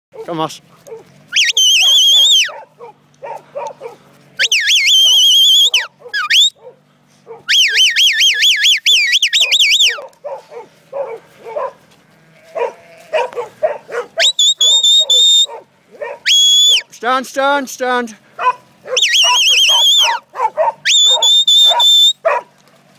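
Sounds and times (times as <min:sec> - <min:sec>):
shrill human whistling: 0:01.4 - 0:02.5, 0:04.4 - 0:06.6, 0:07.5 - 0:10.0, 0:14.2 - 0:15.5, 0:16.3 - 0:16.9, 0:19.0 - 0:20.2, 0:20.9 - 0:22.2.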